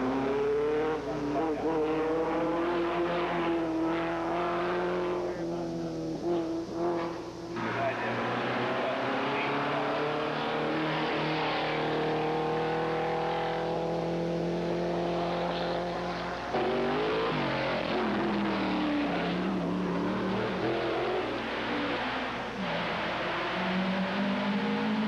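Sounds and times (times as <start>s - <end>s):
race car engine running hard: 0.0s - 25.0s.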